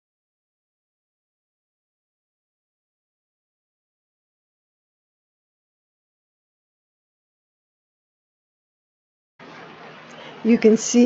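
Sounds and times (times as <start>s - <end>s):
steady background hiss: 9.4s - 11.0s.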